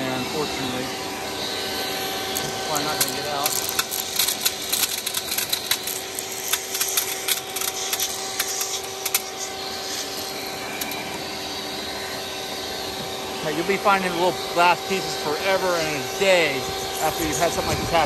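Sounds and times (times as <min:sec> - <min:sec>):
vacuum cleaner running: 0:00.0 - 0:18.0
glass rattling through hose: 0:02.4 - 0:09.5.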